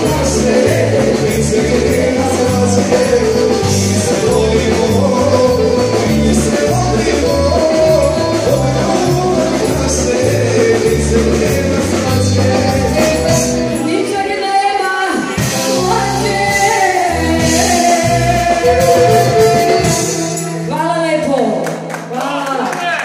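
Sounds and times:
pulsing bass line: 0.0s - 13.9s
keyboard: 0.0s - 21.9s
drums: 0.0s - 22.2s
woman singing through a microphone: 13.2s - 21.6s.

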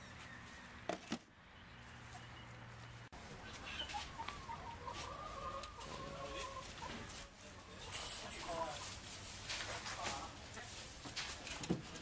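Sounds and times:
chickens clucking: 3.2s - 12.0s.

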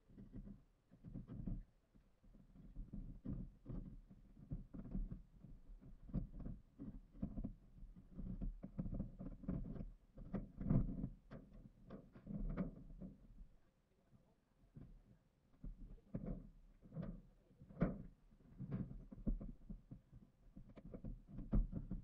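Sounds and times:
footsteps and knocks on steel roofing: 15.6s - 22.0s.

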